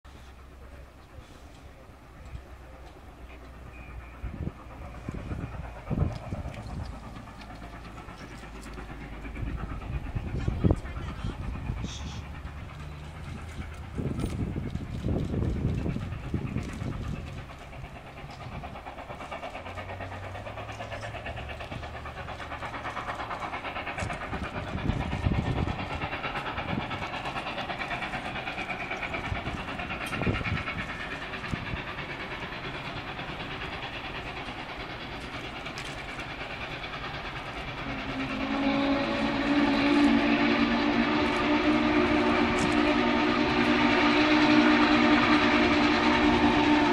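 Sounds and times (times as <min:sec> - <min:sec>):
faint distant train noise: 0:00.1 - 0:46.9
locomotive steam whistle: 0:03.6 - 0:04.5, 0:37.8 - 0:46.9.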